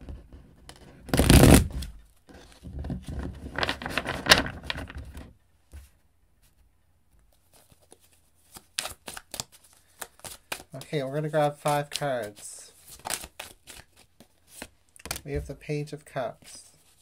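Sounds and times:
cards riffle-shuffled: 7.3s - 15.5s.

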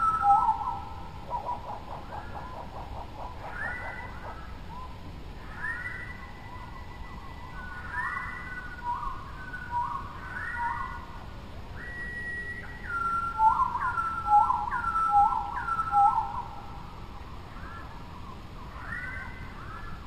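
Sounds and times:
clear whistled notes: 11.8s - 16.2s.

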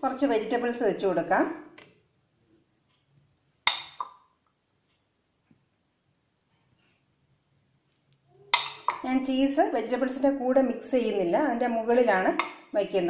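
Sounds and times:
steel spoon clinking against dish: 3.7s - 4.0s, 8.5s - 9.0s, 12.4s - 12.6s.

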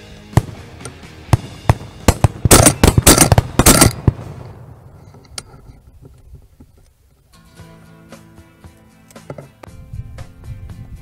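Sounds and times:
shotgun shots: 0.3s - 4.6s.

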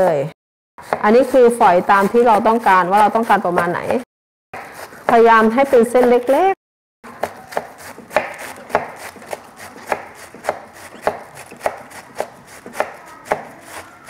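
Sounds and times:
knife shredding cabbage on board: 0.8s - 4.0s, 4.6s - 6.5s, 7.1s - 14.0s.

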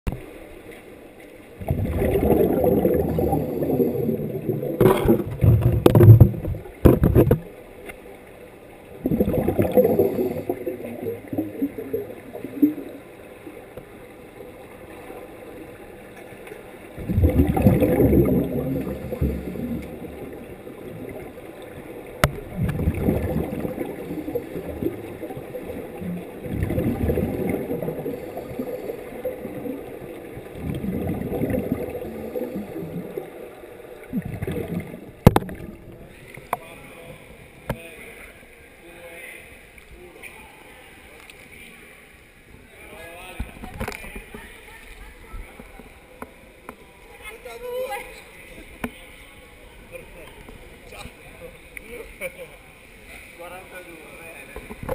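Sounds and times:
underwater rushing gurgling water: 0.1s - 37.8s.

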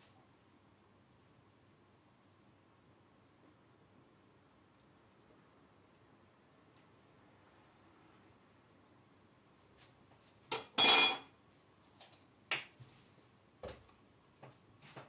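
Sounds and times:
glass jar clink: 10.5s - 11.3s.

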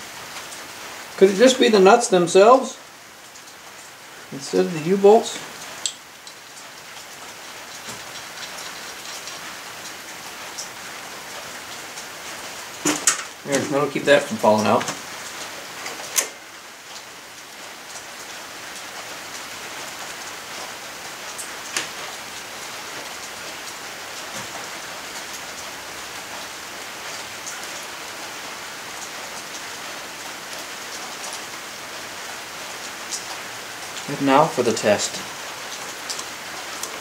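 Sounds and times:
steady hiss: 0.0s - 37.0s.

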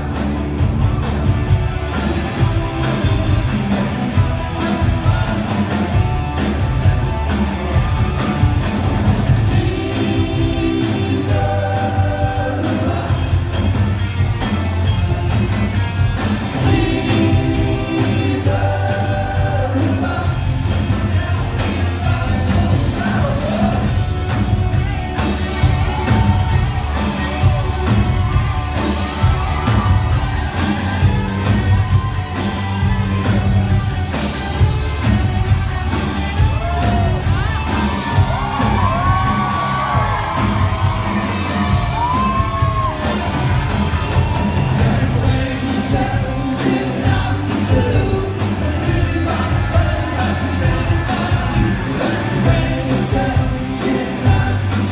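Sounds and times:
live rock band playing: 0.0s - 54.9s
lead vocal singing: 9.1s - 14.1s, 16.3s - 25.0s, 36.5s - 54.9s
crowd whoops and yells: 24.6s - 33.8s, 36.0s - 46.4s.

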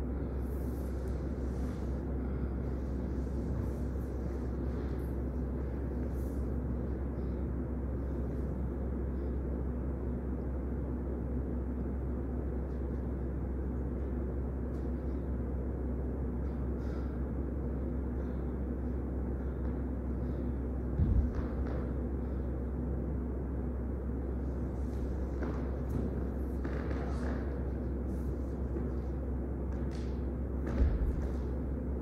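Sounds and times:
low room rumble and hum: 0.0s - 32.0s
soft brushing of dancer moving: 0.3s - 6.8s.

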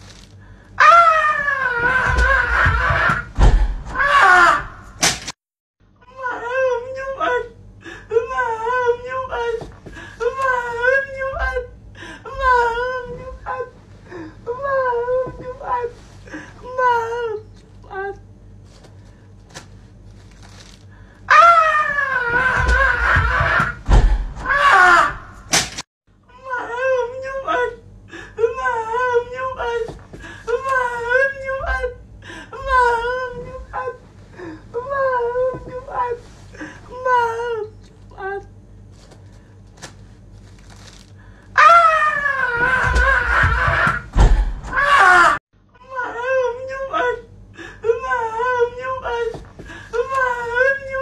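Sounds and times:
person wailing high-pitched: 0.8s - 3.3s, 21.3s - 23.8s, 28.4s - 32.0s, 32.6s - 34.0s, 41.6s - 44.0s
person wailing: 0.8s - 4.8s, 21.3s - 25.4s, 28.4s - 38.5s, 41.6s - 44.1s, 44.7s - 51.0s.

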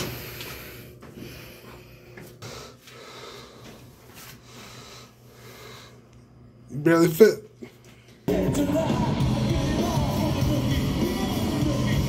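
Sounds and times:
person breathing heavily: 0.0s - 6.1s.

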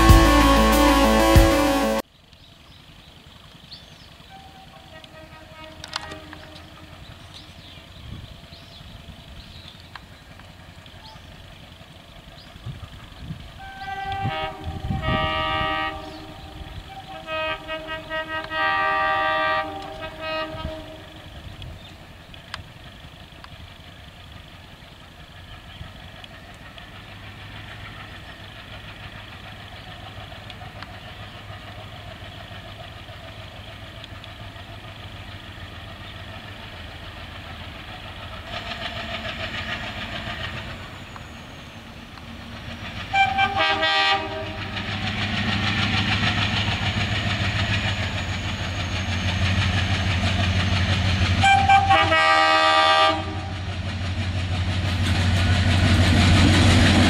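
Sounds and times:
train horn blasts: 0.0s - 2.0s, 4.3s - 7.2s, 13.6s - 21.4s, 43.1s - 44.9s, 51.4s - 53.6s
diesel locomotive engine drone: 0.0s - 57.0s
wheels clattering on rails: 2.4s - 15.3s, 19.6s - 57.0s.

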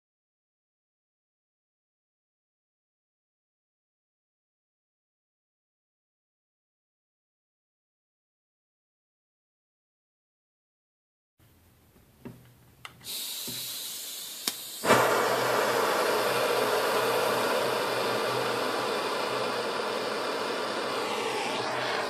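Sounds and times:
blowtorch igniter clicks: 12.8s - 15.6s
blowtorch flame hissing: 13.0s - 22.0s
flame catching with a pop: 14.4s - 15.2s.

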